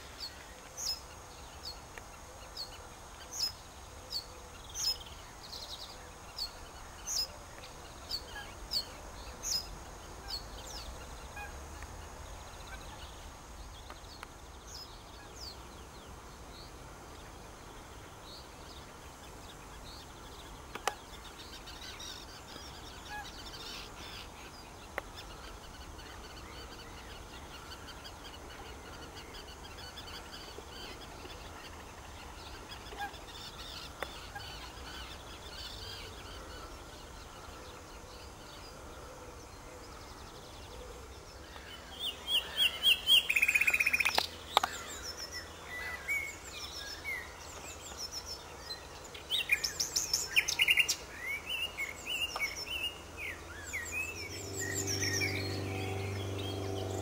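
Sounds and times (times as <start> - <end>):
nightingale singing trills: 0.0 - 38.8, 39.5 - 57.0
faint distant birdsong: 0.0 - 57.0
low steady rumble: 53.3 - 57.0.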